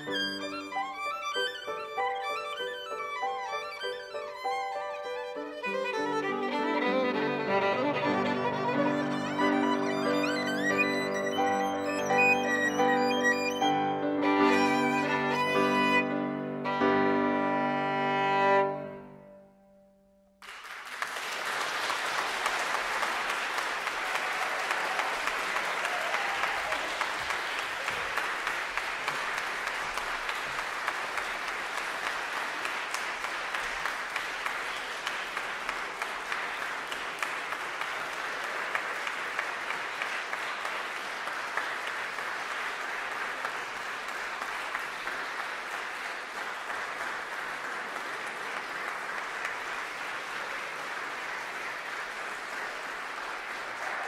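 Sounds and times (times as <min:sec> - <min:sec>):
audience applause: 0:00.0 - 0:16.1, 0:20.4 - 0:54.0
violin and piano chord: 0:00.0 - 0:20.0.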